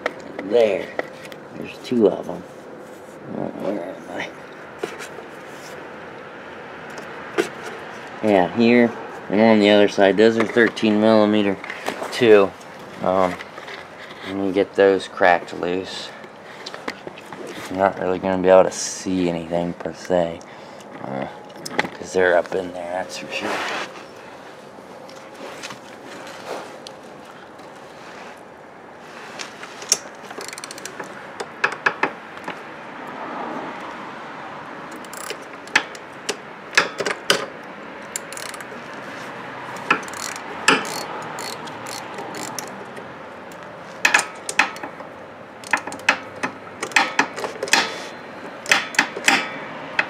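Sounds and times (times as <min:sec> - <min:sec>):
socket ratchet clicking: 0:29.9 - 0:32.0, 0:34.9 - 0:38.7, 0:39.8 - 0:50.0.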